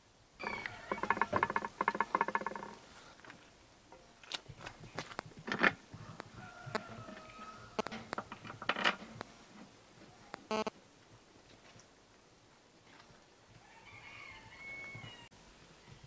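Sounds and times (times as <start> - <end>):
rapid squeaking: 0.4 - 2.8.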